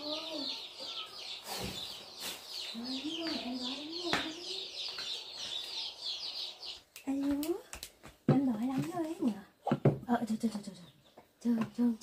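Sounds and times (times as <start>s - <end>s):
chicks peeping: 0.0s - 7.5s.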